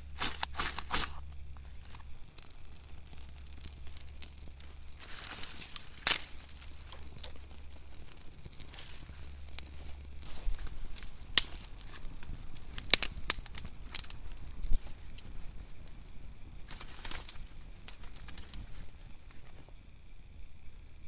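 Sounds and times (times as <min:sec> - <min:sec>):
dry material rustling: 0:00.0 - 0:16.0
fire crackling and popping: 0:00.0 - 0:21.0.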